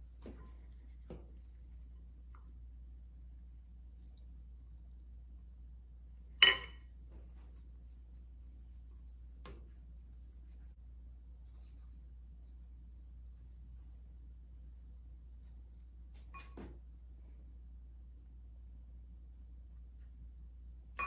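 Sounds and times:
ringing glass clink: 6.4s - 6.8s
metal scoop clinking on glass bowl: 6.4s - 6.9s.

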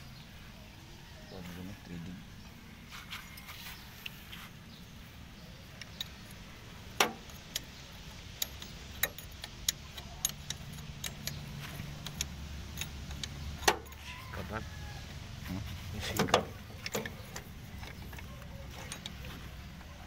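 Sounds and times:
spanner clinking on metal: 5.8s - 14.1s.

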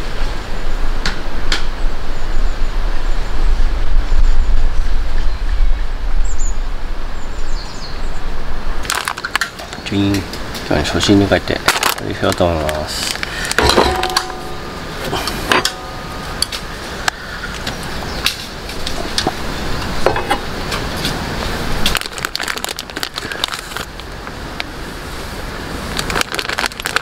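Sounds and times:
plastic packet crinkling and tearing: 8.8s - 9.8s, 11.4s - 13.6s, 21.8s - 24.7s, 25.9s - 27.0s
cookware clicks and knocks: 13.6s - 14.4s.

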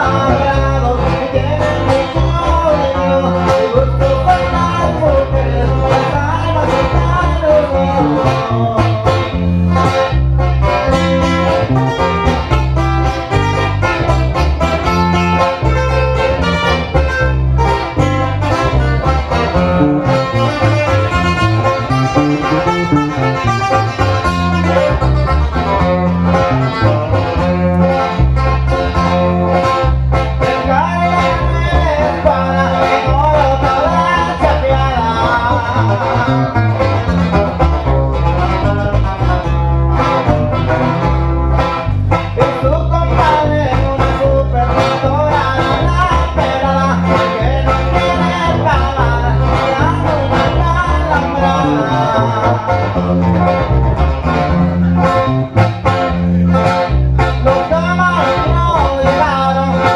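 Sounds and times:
man singing through speakers: 0.0s - 9.5s, 30.4s - 40.2s, 42.4s - 53.5s, 57.4s - 59.9s
pulsing bass line: 0.0s - 59.9s
twelve-string acoustic guitar strumming: 0.0s - 59.9s.

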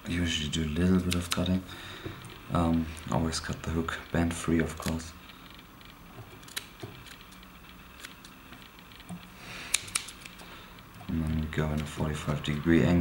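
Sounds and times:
scissors snipping: 6.4s - 7.4s, 9.7s - 10.4s.

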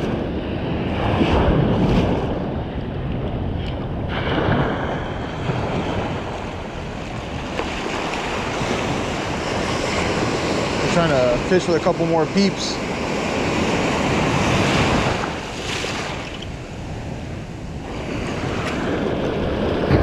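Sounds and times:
ocean surf breaking: 0.0s - 20.0s
wind buffeting microphone: 0.0s - 20.0s.

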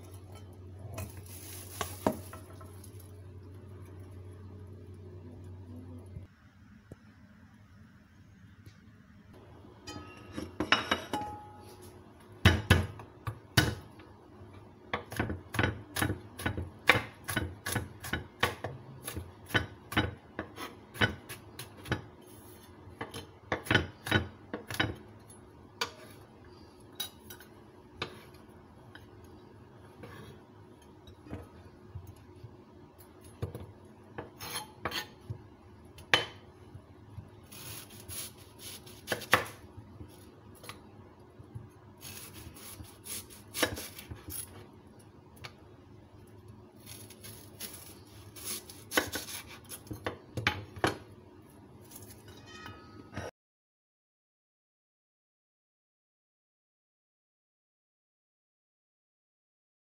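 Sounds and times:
knife chopping on wooden board: 38.2s - 39.6s, 47.0s - 51.0s.

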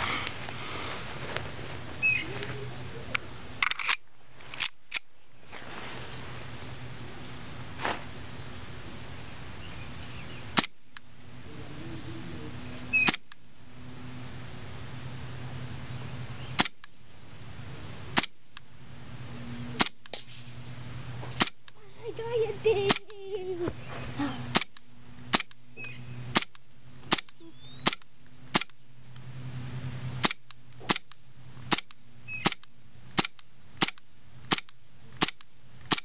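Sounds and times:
airsoft pistol shots: 18.2s - 18.4s, 30.2s - 31.1s, 31.7s - 36.0s.

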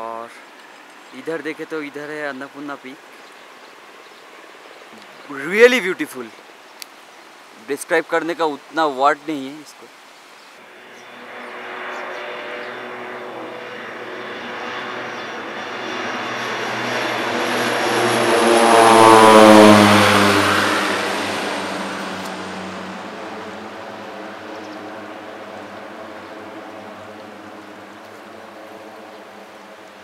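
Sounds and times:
aircraft flying past: 10.6s - 30.0s.

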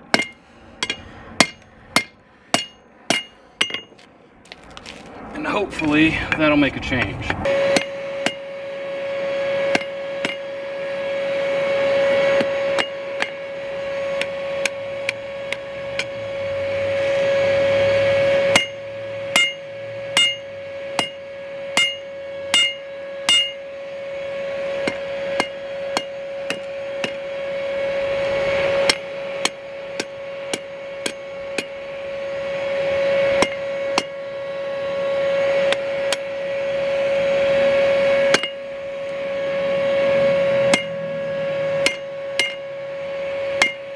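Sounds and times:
hammer striking steel on anvil: 0.0s - 4.0s, 7.6s - 8.5s, 9.7s - 10.5s, 12.4s - 13.5s, 14.1s - 16.2s, 18.4s - 23.7s, 24.8s - 27.3s, 28.8s - 31.8s, 33.4s - 34.2s, 38.3s - 38.7s, 40.7s - 41.0s, 41.8s - 42.8s, 43.6s - 43.9s
steady hum: 0.0s - 43.9s.

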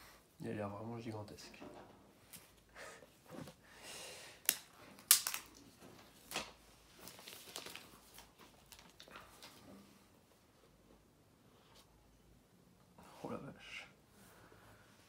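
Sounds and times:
sharp snaps of tearing film: 4.4s - 5.7s
plastic shrink-wrap tearing and crinkling: 4.4s - 9.5s.

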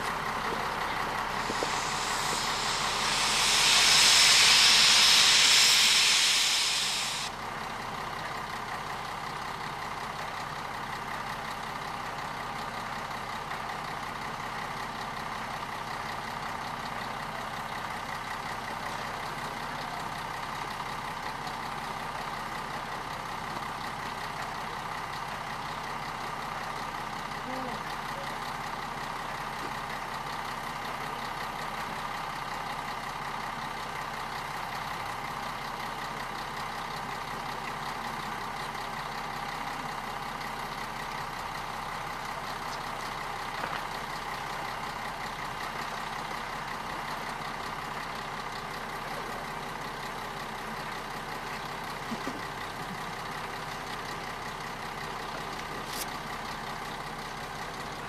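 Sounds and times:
steam locomotive hissing: 1.0s - 7.4s.

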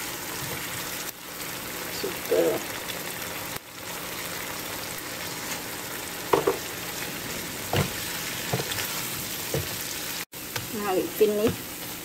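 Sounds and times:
paste sizzling in a wok: 0.0s - 12.0s
spatula knocking: 6.3s - 6.6s, 7.6s - 9.8s.

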